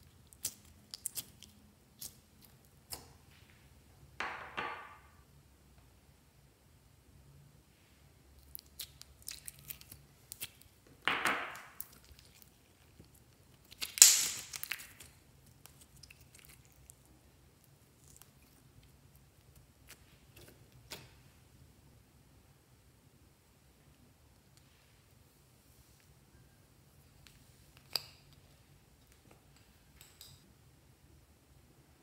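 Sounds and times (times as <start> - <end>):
slime squelches: 8.3 - 10.8, 11.4 - 21.0
slime sticky clicks and pops: 13.7 - 15.1.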